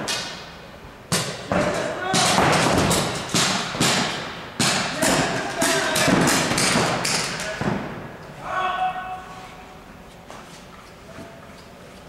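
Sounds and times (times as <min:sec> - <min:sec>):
players shouting: 0:04.9 - 0:07.8, 0:08.4 - 0:09.6.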